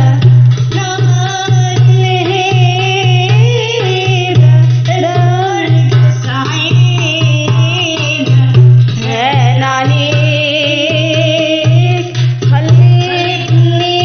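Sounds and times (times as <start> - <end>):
hand-drum percussion: 0.0 - 14.0
pulsing bass line: 0.0 - 14.0.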